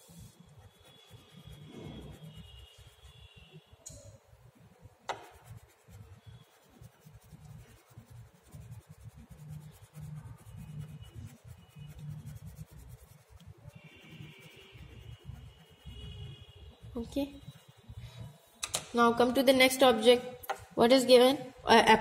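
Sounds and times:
pencil rubbing on paper: 0.0 - 3.5, 4.9 - 18.2.

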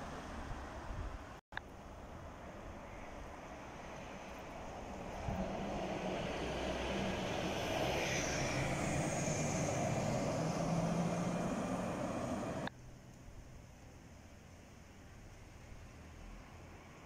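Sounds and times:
bus engine and tyres rumbling: 0.0 - 13.6.

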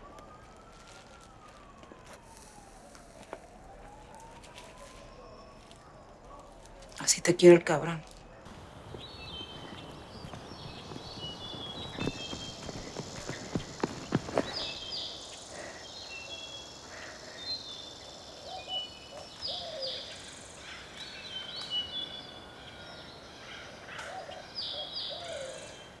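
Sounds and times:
soft outdoor hiss: 0.0 - 26.0
birds chirping and whistling: 8.5 - 26.0
lower bird calls: 8.5 - 26.0.

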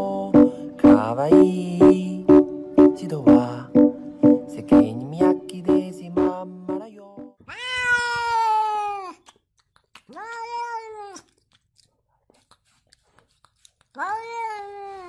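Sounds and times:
pop music with steady beat: 0.0 - 7.3
cat meowing: 7.4 - 9.2, 10.1 - 11.3, 14.0 - 15.0.

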